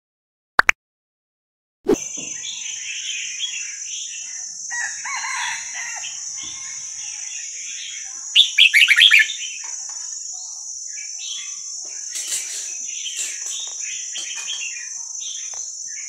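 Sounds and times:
young birds chattering and calling: 2.2 - 16.0.

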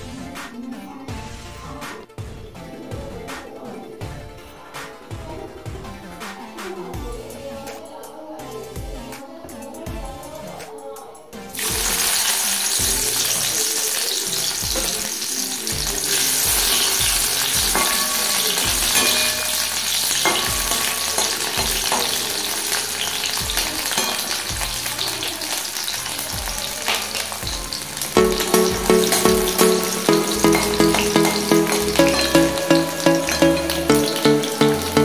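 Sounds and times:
vegetables sizzling in hot oil: 11.6 - 35.0
music with low beat: 14.6 - 15.1, 15.7 - 22.4, 26.3 - 35.0.

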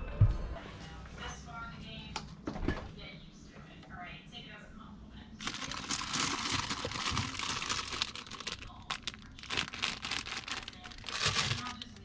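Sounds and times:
plastic bag crinkling: 5.4 - 12.0.

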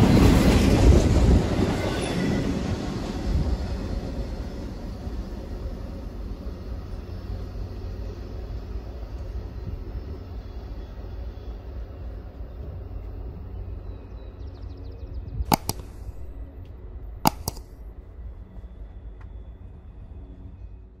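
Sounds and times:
double mouse clicks: 15.5 - 16.4, 17.3 - 17.7.

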